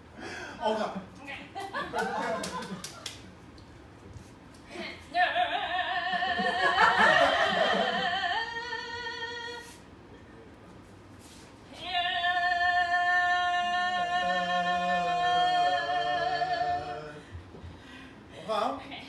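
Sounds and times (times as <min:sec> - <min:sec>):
person singing operatically: 0:11.9 - 0:17.2.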